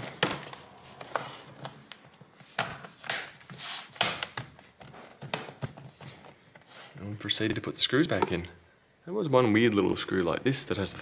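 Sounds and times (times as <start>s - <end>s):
plastic cover scraping: 0.0s - 4.0s.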